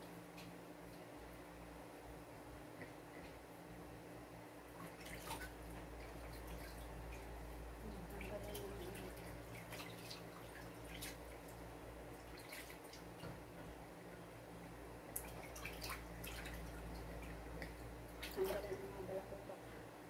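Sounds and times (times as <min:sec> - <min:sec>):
steady low hum: 0:00.0 - 0:20.0
water splashing in plastic basin: 0:04.8 - 0:13.6, 0:15.1 - 0:18.9.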